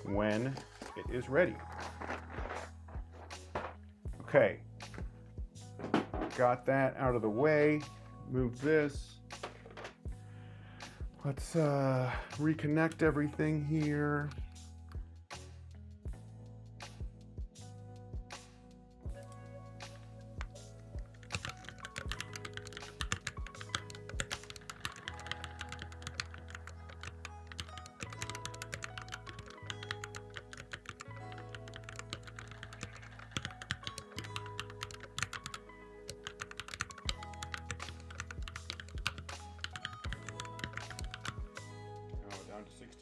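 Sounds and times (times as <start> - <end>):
background music with bass line: 0.0 - 35.7, 36.6 - 43.0
mechanical keyboard typing: 21.0 - 41.5.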